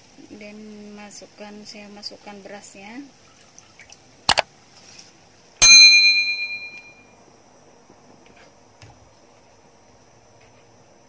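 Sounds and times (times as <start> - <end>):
bright metallic ding: 5.6 - 7.1.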